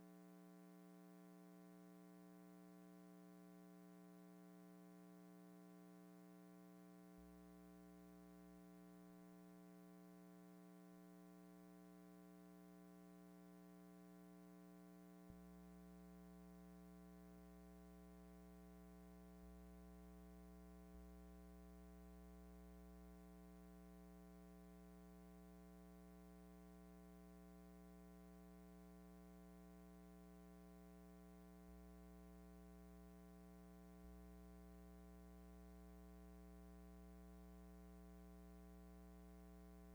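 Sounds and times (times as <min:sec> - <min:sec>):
faint steady hum: 0:00.0 - 0:39.9.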